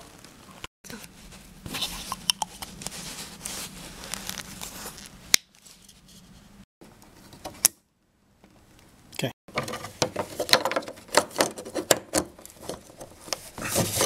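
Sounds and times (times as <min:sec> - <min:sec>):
plastic rustling and scraping: 0:00.0 - 0:06.5, 0:09.5 - 0:14.0.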